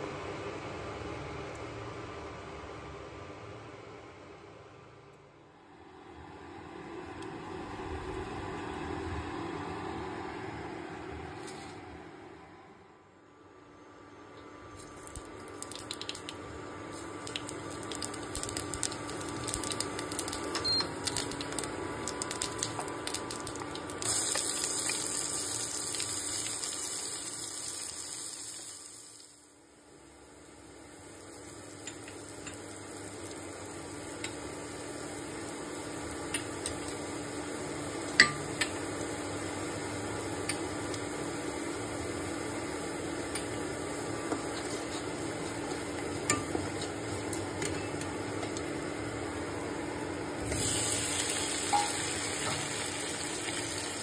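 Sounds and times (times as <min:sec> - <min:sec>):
spice seeds sizzling in hot oil: 0:14.8 - 0:29.6, 0:30.3 - 0:42.8, 0:50.4 - 0:54.0.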